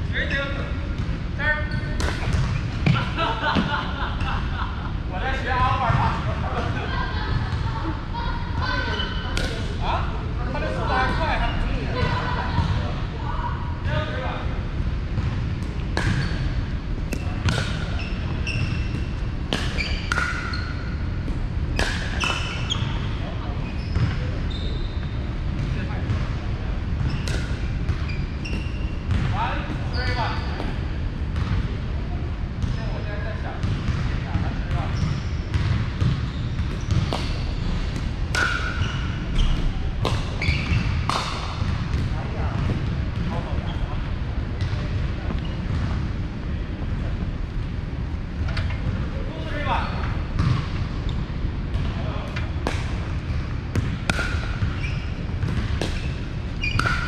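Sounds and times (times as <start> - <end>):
low rumble of hall: 0.0 - 57.0
ball bouncing on gym floor: 1.8 - 3.8, 8.6 - 9.7, 15.2 - 23.1, 27.0 - 30.8, 31.4 - 31.8, 33.6 - 43.8, 44.6 - 46.1, 50.3 - 57.0
sneakers squeaking on hardwood: 15.9 - 25.2, 27.0 - 30.8, 34.8 - 44.0, 53.2 - 57.0.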